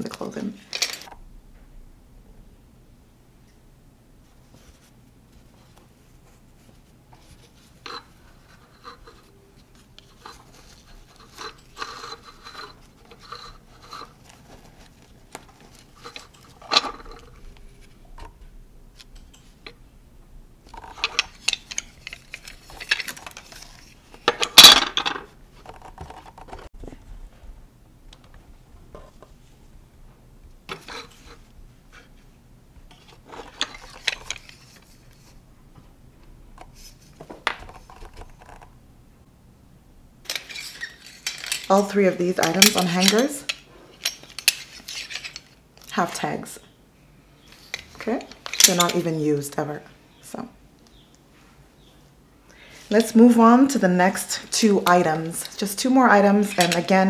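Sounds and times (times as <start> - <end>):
hanger clicks and cloth rustles: 0.0 - 1.2, 40.2 - 46.0, 47.7 - 49.1.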